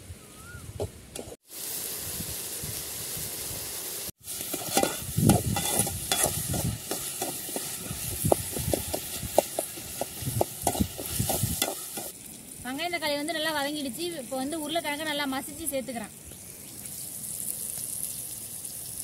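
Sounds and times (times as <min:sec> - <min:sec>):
vegetables sizzling in hot oil: 0:01.2 - 0:19.0
ladle scraping and knocking pan: 0:04.3 - 0:12.1.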